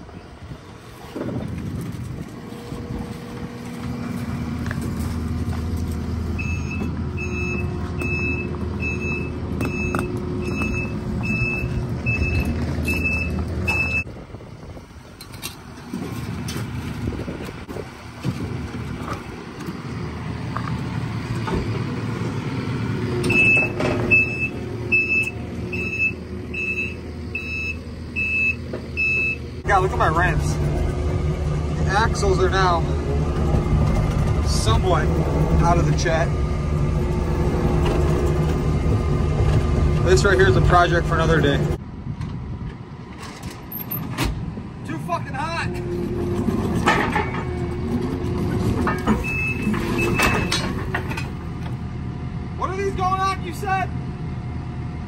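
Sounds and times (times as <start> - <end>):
diesel engine running: 0.0 - 55.0
reverse alarm beeping: 6.4 - 14.1, 23.1 - 29.5, 49.2 - 50.7.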